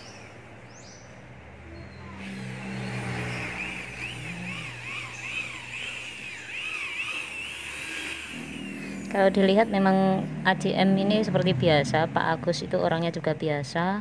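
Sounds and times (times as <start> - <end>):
power tool motor whine: 2.1 - 10.8.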